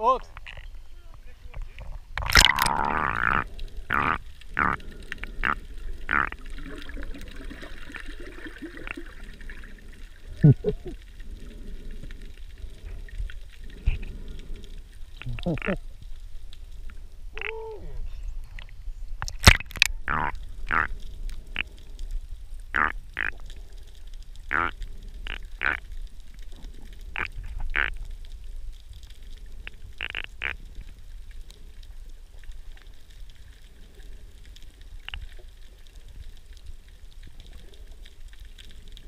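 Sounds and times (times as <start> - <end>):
low underwater rumble: 0.6 - 19.2
bubbles gurgling and popping: 2.2 - 14.6.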